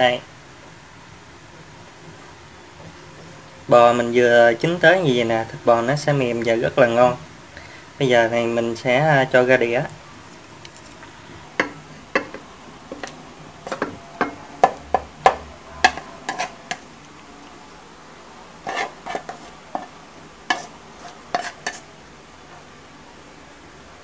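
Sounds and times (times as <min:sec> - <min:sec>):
chopsticks scraping metal wok: 0:11.6 - 0:17.1, 0:18.6 - 0:21.9.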